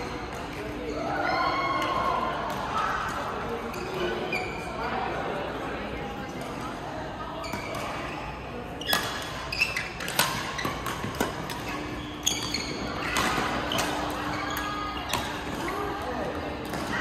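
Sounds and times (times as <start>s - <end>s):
rackets striking shuttlecocks: 8.8s - 17.0s.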